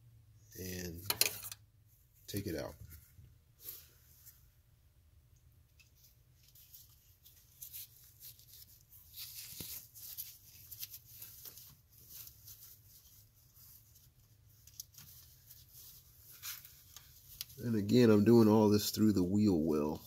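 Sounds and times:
hands rustling among hoses: 5.8 - 20.0.

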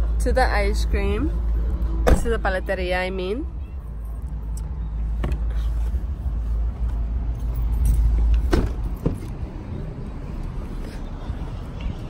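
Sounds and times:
keys and car door clicking: 7.3 - 9.4.

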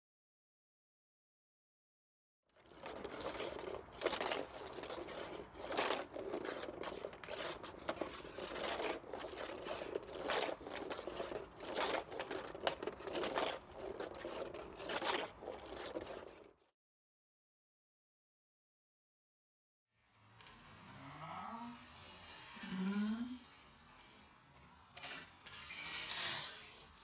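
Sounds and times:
stick and ball scraping floor: 2.6 - 16.7, 20.3 - 27.0.

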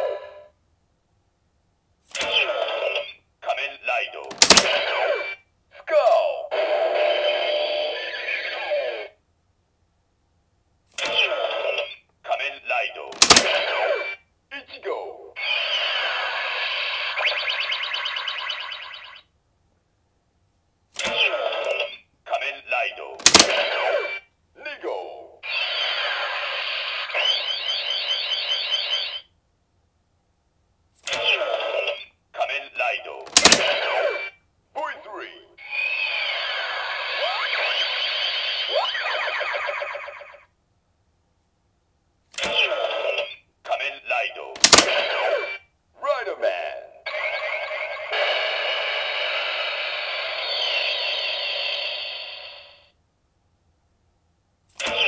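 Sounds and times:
sharp click: 4.3 - 4.7, 13.2 - 13.5, 23.2 - 23.6, 33.3 - 33.7, 44.6 - 44.9
toy belt warbling tone: 15.4 - 19.2, 35.6 - 40.5, 47.1 - 48.4
electronic toy sound: 15.4 - 19.3, 25.4 - 29.3, 35.6 - 40.5, 47.1 - 52.9.

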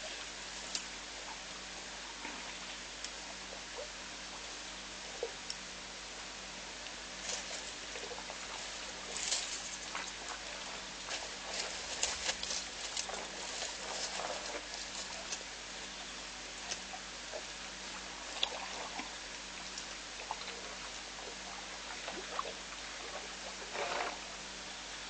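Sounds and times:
steady hiss: 0.0 - 25.0
bush rustling: 7.2 - 17.4
twigs snapping and crackling: 11.5 - 14.2.

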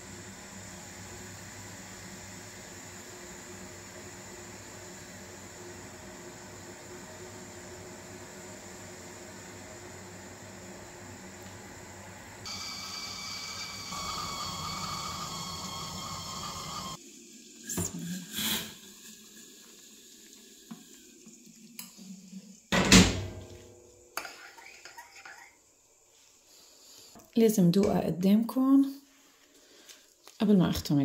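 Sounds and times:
steady hiss with whining tones: 0.0 - 17.7.

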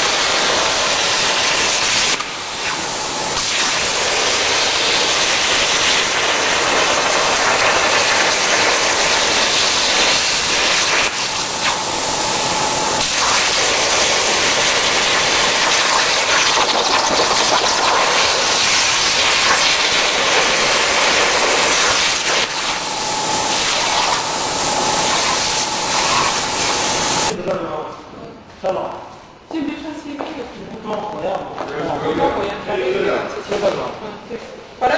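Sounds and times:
cutting torch hissing: 0.0 - 27.4.

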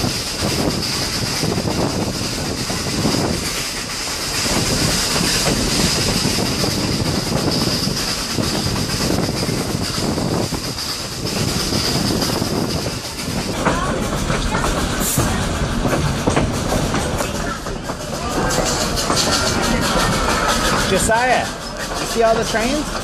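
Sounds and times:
train wheels rumbling on rails: 0.0 - 23.0
high wheel squeal: 17.2 - 23.0.

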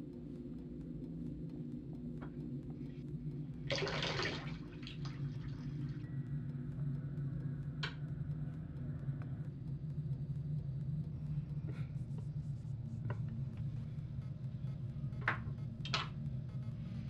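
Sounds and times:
low hum: 0.0 - 17.0
water rushing from tap: 3.7 - 4.5.

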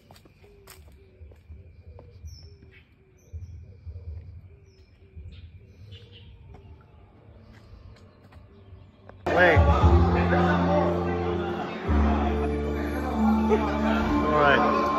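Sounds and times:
low repeated bird calls: 0.0 - 9.3.

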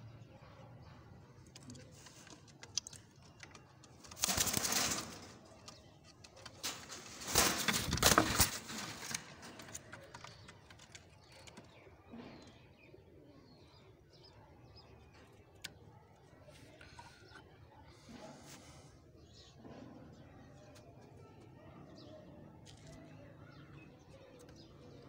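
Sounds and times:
pigeons flapping wings: 4.1 - 5.2, 6.6 - 10.6.

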